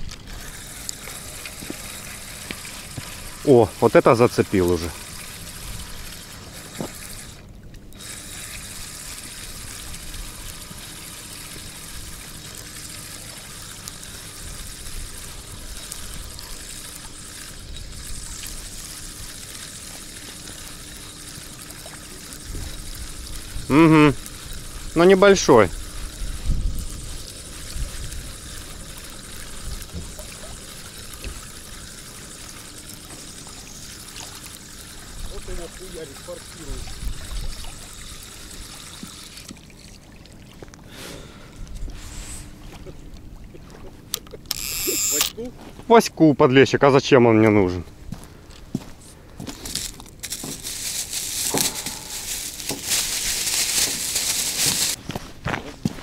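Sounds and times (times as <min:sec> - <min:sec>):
plastic bag rustling: 0:49.5 - 0:55.1.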